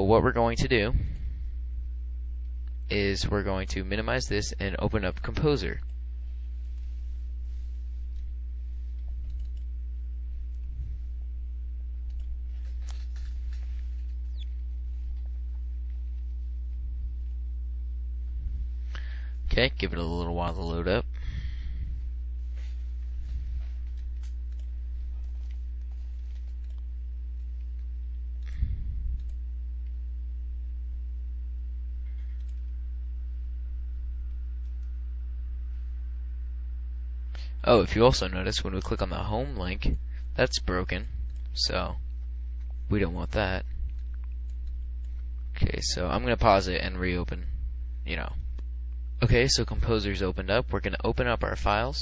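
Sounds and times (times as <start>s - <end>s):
low electrical hum: 0.0s - 52.0s
computer mouse clicking: 8.9s - 9.7s, 12.0s - 13.3s, 23.8s - 26.9s, 32.1s - 32.8s, 43.9s - 45.5s.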